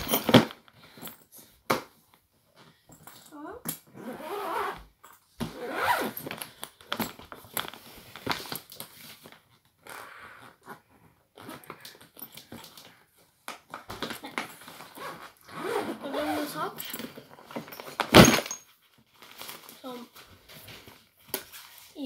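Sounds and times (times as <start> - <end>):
zipper pulled around suitcase: 3.9 - 6.4, 14.7 - 17.0.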